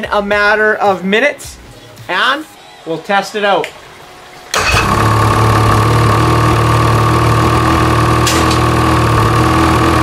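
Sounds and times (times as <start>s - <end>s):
snowmobile engine starting and idling: 4.5s - 10.0s.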